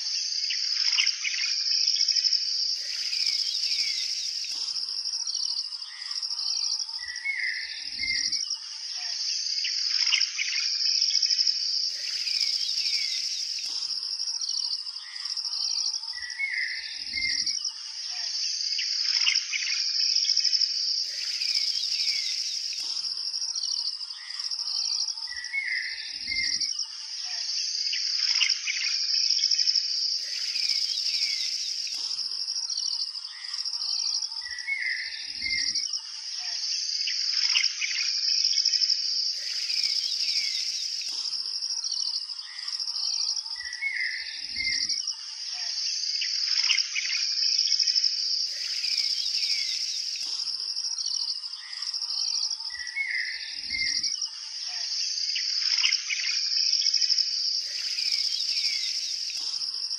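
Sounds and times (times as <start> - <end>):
high insect chorus: 0.0 - 59.9
birds chirping: 2.7 - 10.7, 11.8 - 19.7, 21.0 - 28.9, 30.1 - 36.5, 39.3 - 44.9, 48.3 - 54.0, 57.6 - 59.9.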